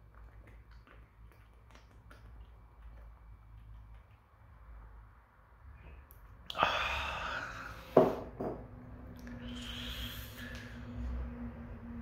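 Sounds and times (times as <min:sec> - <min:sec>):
person breathing close to microphone: 0:06.5 - 0:08.2, 0:09.2 - 0:11.4.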